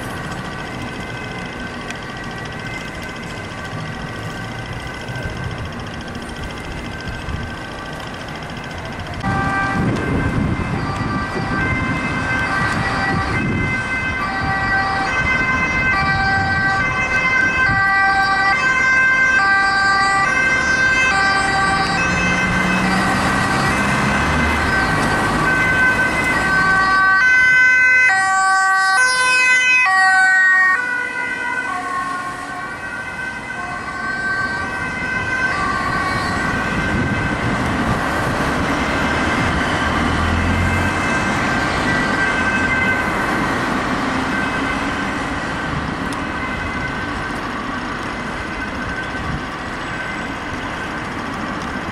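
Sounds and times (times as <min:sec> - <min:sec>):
traffic noise: 0:00.0 - 0:51.9
two-tone ambulance siren: 0:00.0 - 0:51.9.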